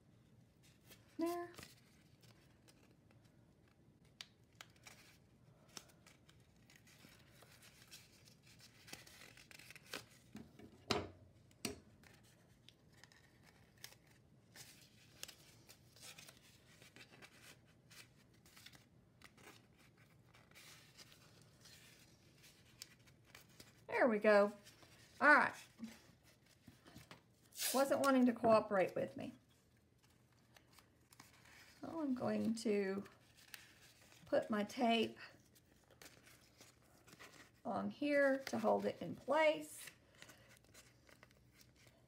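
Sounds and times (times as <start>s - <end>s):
tape tearing and rustling: 4.1s - 10.3s, 27.4s - 28.2s.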